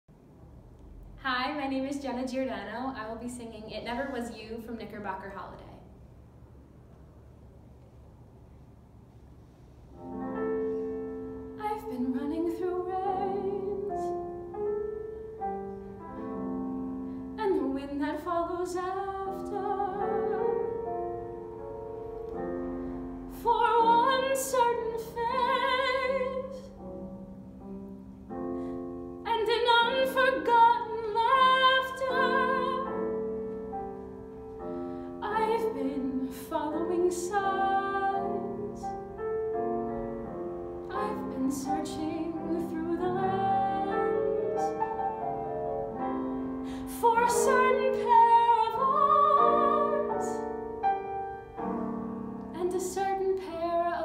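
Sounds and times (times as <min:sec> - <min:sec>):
piano accompaniment: 0:06.6 - 0:54.0
woman singing a ballad: 0:11.6 - 0:14.2, 0:17.4 - 0:20.8, 0:23.3 - 0:26.7, 0:29.2 - 0:33.0, 0:35.2 - 0:38.9, 0:40.9 - 0:44.7, 0:46.6 - 0:50.6, 0:52.5 - 0:54.0.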